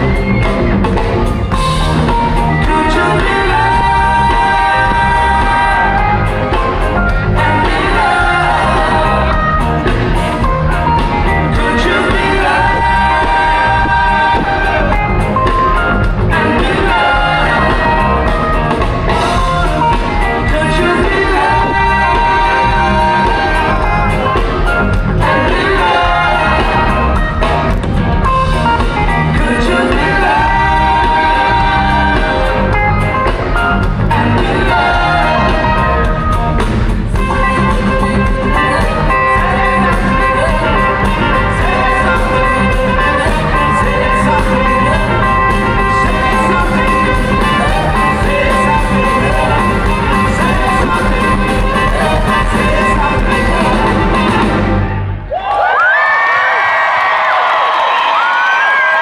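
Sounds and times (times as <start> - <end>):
electric guitars: 0.0 - 55.3
person singing: 1.5 - 27.4, 28.8 - 36.5, 37.1 - 54.6
trumpet and saxophone: 37.1 - 55.3.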